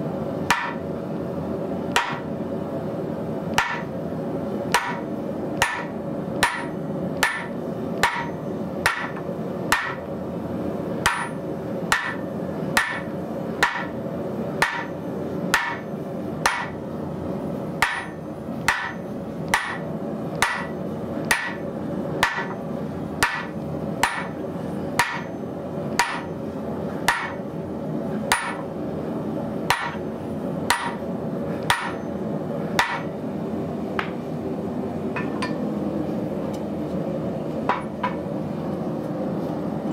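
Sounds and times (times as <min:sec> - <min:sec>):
steady hum: 0:00.0 - 0:39.9
hammer striking steel with ring: 0:00.5 - 0:00.8, 0:02.0 - 0:02.3, 0:03.6 - 0:03.9, 0:04.8 - 0:05.0, 0:05.6 - 0:10.0, 0:11.0 - 0:12.2, 0:12.8 - 0:14.0, 0:14.6 - 0:15.8, 0:16.4 - 0:16.8, 0:17.8 - 0:19.8, 0:20.4 - 0:21.6, 0:22.2 - 0:22.6, 0:23.2 - 0:24.4, 0:25.0 - 0:25.4, 0:26.0 - 0:26.3, 0:27.1 - 0:27.4, 0:28.3 - 0:28.7, 0:29.7 - 0:30.0, 0:30.7 - 0:31.0, 0:31.7 - 0:32.1, 0:32.8 - 0:33.1.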